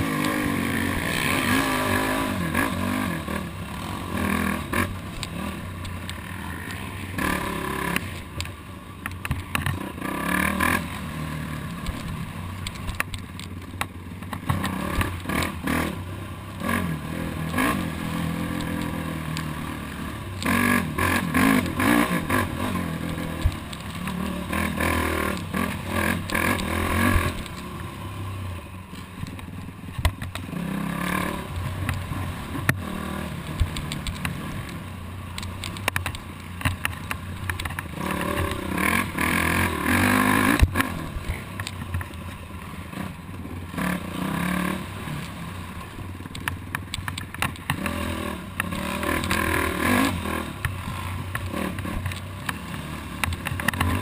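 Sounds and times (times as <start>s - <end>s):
quad engine revving: 0.0s - 8.2s, 9.5s - 12.2s, 14.4s - 28.2s, 30.4s - 34.8s, 37.6s - 41.8s, 42.9s - 45.5s, 47.7s - 54.0s.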